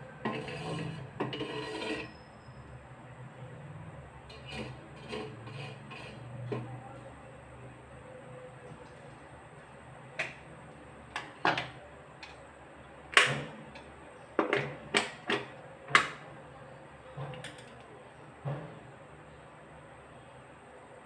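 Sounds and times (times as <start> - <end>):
clicks and knocks of handling: 11.1 - 12.4, 17.2 - 18.0.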